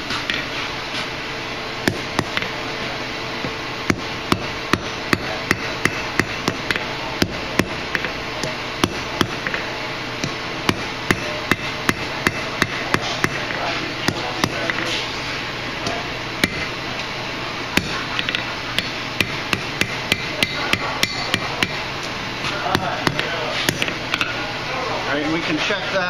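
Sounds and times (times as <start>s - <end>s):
hammer striking steel on anvil: 1.8s - 2.6s, 3.4s - 14.9s, 15.8s - 16.8s, 17.8s - 21.9s.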